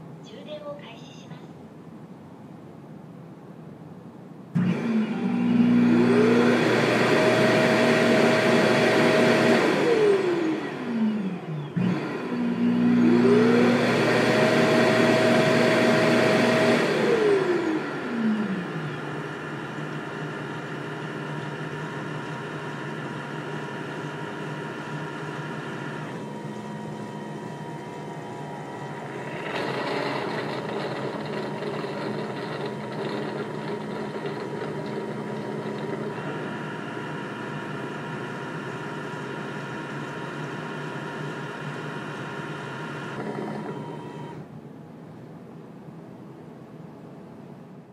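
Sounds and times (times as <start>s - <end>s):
steady machine hum: 0.0s - 47.9s
suction fan whining: 4.4s - 44.8s.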